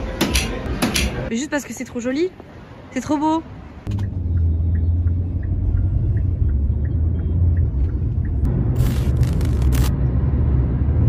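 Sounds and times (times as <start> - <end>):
car cabin rumble while driving: 3.8 - 9.4
light regular ticking: 4.0 - 9.9.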